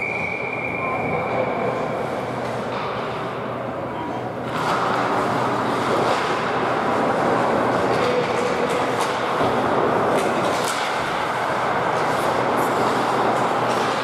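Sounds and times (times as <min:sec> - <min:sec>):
arena crowd hubbub: 0:00.0 - 0:14.0
sharp skate scrapes and clicks: 0:04.5 - 0:14.0.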